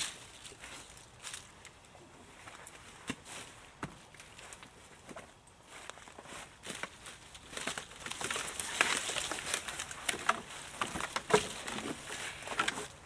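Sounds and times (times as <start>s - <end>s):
dry twigs crackling and snapping: 0.0s - 1.9s, 4.0s - 13.0s.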